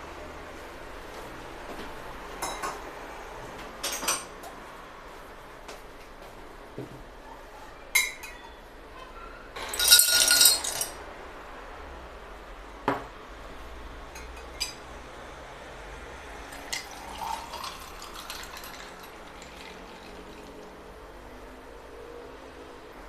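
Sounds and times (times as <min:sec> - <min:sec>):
ice cubes clattering into glass: 0:09.6 - 0:11.0, 0:16.6 - 0:20.5
liquid pouring and splashing: 0:16.5 - 0:20.8.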